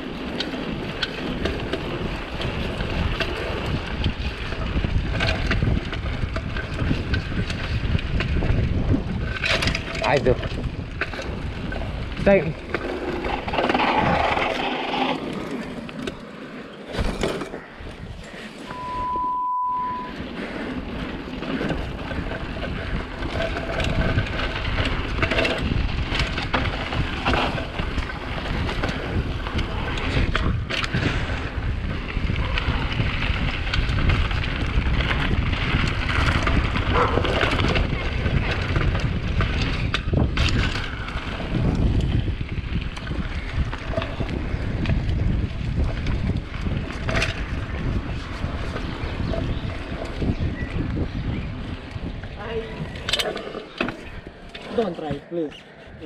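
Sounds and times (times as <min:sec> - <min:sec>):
wind buffeting microphone: 0:00.0 - 0:16.2, 0:16.9 - 0:56.0
bike tyres on rough ground: 0:00.0 - 0:56.0
beep: 0:18.7 - 0:20.2.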